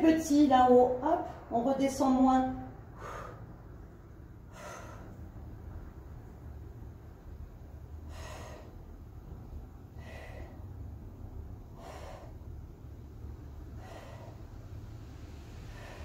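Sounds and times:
steady low hum: 0.0 - 16.0
woman breathing hard: 2.8 - 5.8, 7.6 - 16.0.

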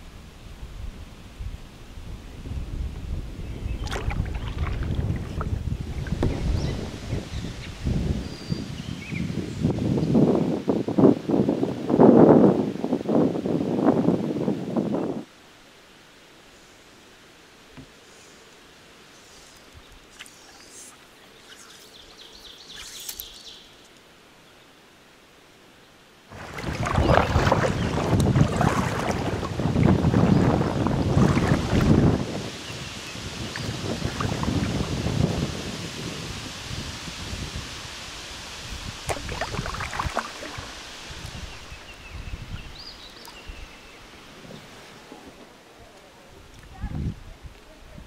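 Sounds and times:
wind on microphone: 0.0 - 15.3, 26.3 - 48.0
river ambience: 3.3 - 10.6, 12.8 - 46.9
paddle splashing water: 3.7 - 7.8, 26.3 - 32.5, 33.4 - 35.2, 39.0 - 41.8
songbird warbling: 19.2 - 23.8.

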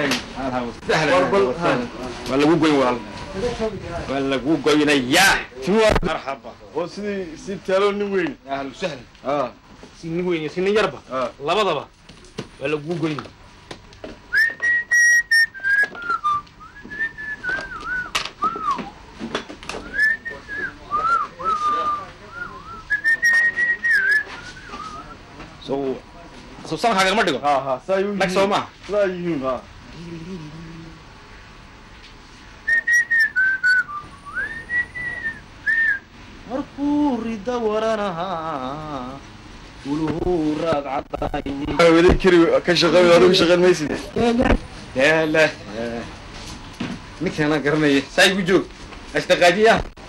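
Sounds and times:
person whistling a tune: 14.3 - 18.8, 19.8 - 25.1, 32.7 - 36.0.

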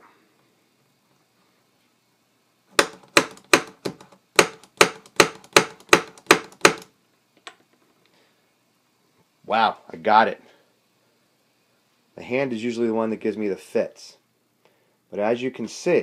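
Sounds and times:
pin punch tapping: 2.8 - 6.9.

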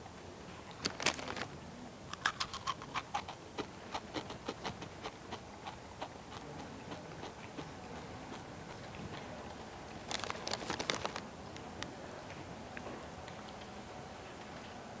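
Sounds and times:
crunching of chips being chewed: 0.7 - 9.3, 9.9 - 11.9.

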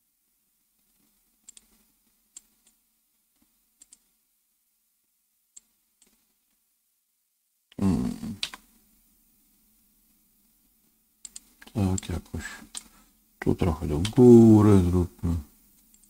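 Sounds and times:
mouse and keyboard clicks: 1.4 - 1.8, 3.8 - 4.1, 8.4 - 8.6, 11.2 - 12.9.

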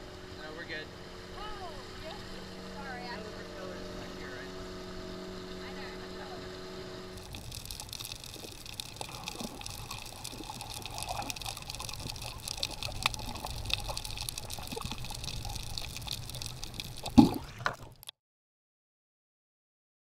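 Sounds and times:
muffled underwater rush: 5.6 - 18.1
bubbly gurgle: 7.1 - 18.1
small crackling clicks: 7.2 - 18.1.

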